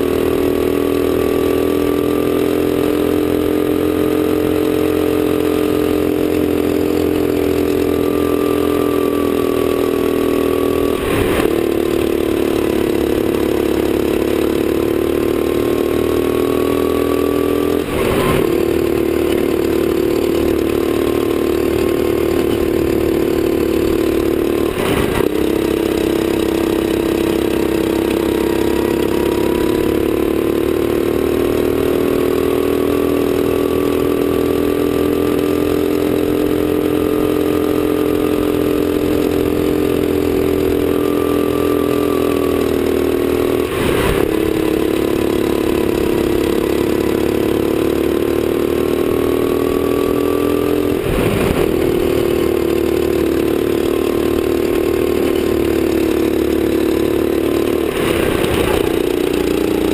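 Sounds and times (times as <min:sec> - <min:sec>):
kart engine at full throttle: 0:00.0 - 0:59.9.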